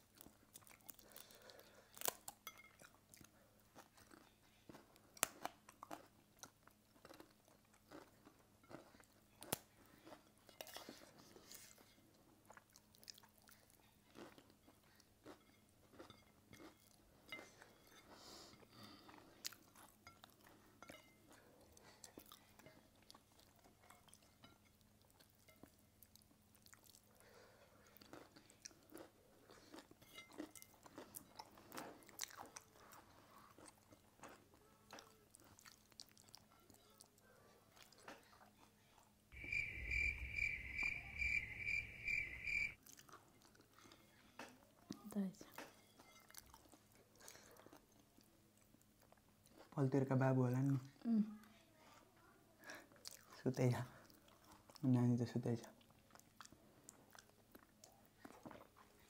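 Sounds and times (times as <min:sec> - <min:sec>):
small clicks and crunches of eating: 0:00.0 - 0:39.2, 0:42.8 - 0:50.0, 0:52.6 - 0:59.0
chewing: 0:00.0 - 0:49.8, 0:52.6 - 0:55.0, 0:55.6 - 0:59.0.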